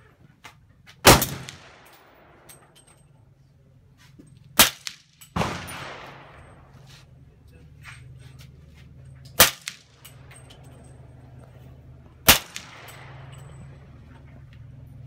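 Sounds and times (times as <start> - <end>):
suppressed rifle shots: 1.0 - 2.4, 4.6 - 6.5, 12.2 - 13.3.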